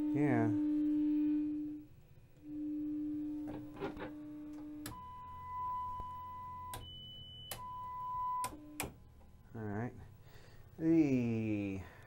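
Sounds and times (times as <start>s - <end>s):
steady test tone: 0.0s - 8.9s.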